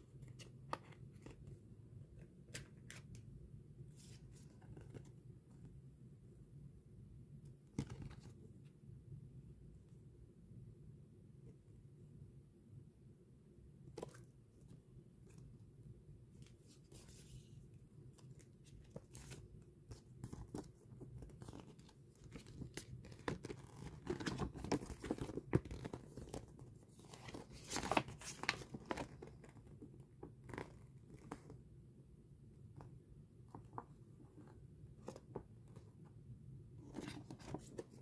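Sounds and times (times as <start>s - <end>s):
paper rustling and crinkling: 18.2s - 29.6s.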